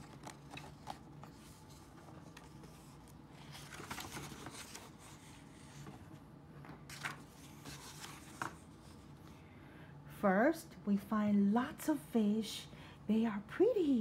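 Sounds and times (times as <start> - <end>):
paper page turning: 0.0 - 5.9, 6.9 - 9.0.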